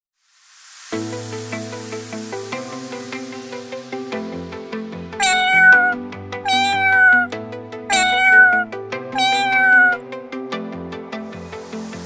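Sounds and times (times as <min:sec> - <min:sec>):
sampled cat meow: 0:05.2 - 0:07.3, 0:07.9 - 0:10.0.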